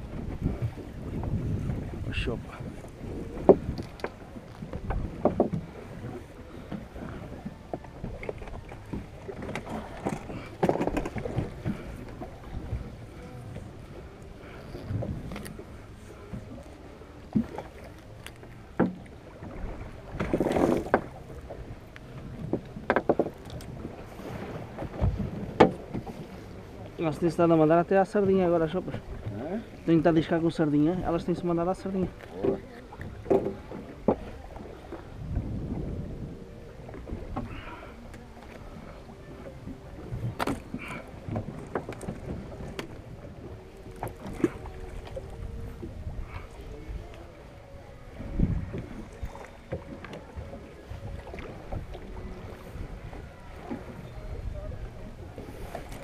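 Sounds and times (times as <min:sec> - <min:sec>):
knocks and thumps on boat: 0:00.0 - 0:14.1, 0:17.3 - 0:26.4, 0:30.5 - 0:47.3
water noise: 0:00.0 - 0:56.0.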